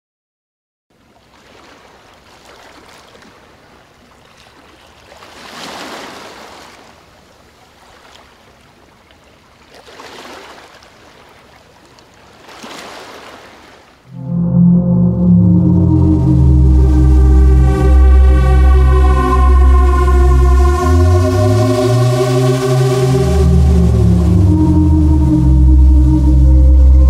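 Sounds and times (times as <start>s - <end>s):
rushing watery noise: 14.1s - 27.0s.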